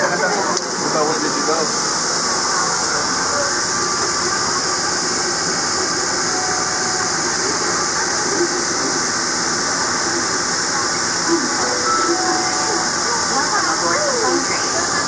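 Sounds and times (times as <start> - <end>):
train running through tunnel: 0.8 - 15.0.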